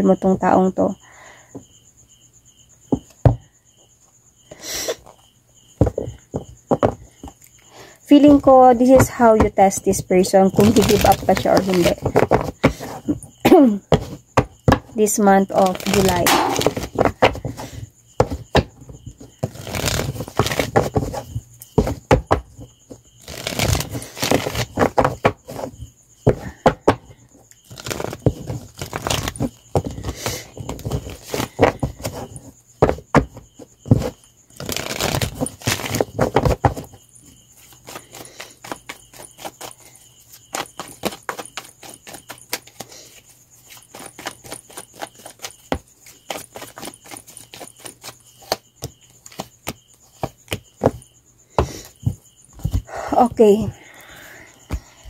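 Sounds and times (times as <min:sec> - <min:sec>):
cards being shuffled: 0:10.6 - 0:13.1, 0:15.6 - 0:17.6, 0:19.4 - 0:21.2, 0:23.2 - 0:25.7, 0:27.7 - 0:32.3, 0:34.0 - 0:36.8, 0:37.6 - 0:39.8, 0:43.6 - 0:48.6.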